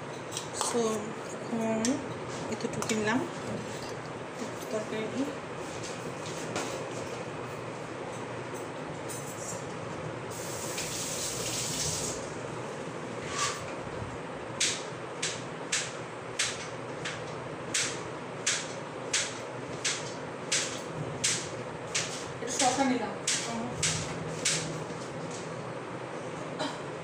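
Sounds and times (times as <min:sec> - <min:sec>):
steady hiss: 0:10.3 - 0:12.3.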